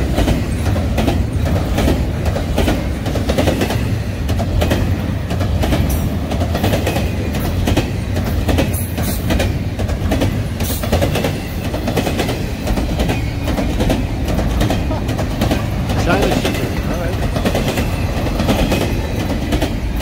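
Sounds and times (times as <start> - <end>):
freight train wheels rumbling: 0.0 - 20.0
wheels clacking over rail joints: 0.0 - 20.0.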